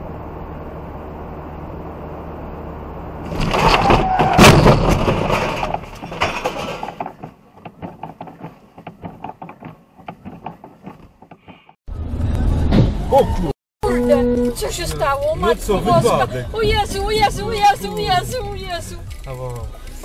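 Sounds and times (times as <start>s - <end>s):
car road noise: 0.0s - 20.0s
car crash: 3.2s - 10.3s.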